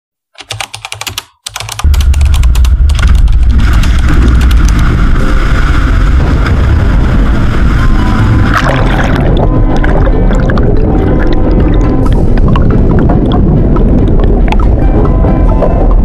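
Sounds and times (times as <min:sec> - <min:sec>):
keyboard typing clicks: 0:00.4 - 0:04.8.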